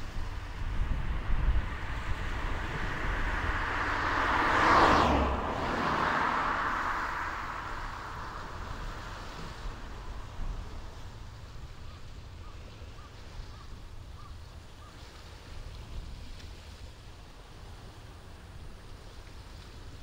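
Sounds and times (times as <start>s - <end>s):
wind rumble on microphone: 0.0s - 20.0s
car driving past: 0.5s - 11.1s.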